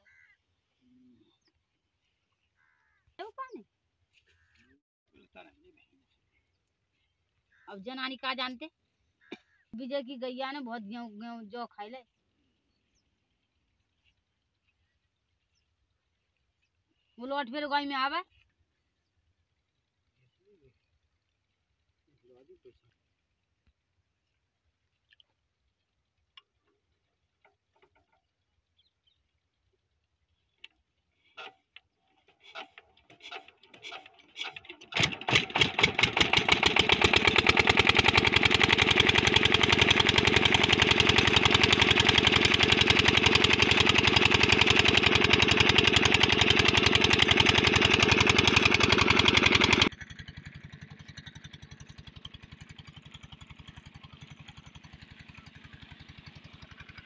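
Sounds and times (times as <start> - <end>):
diesel engine starting and chugging: 31.4 - 57.0.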